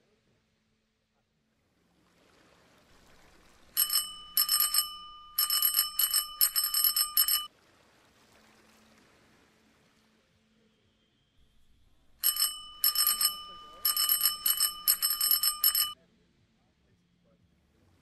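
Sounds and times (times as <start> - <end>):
bicycle bell ringing: 3.8 - 7.5, 11.6 - 16.0.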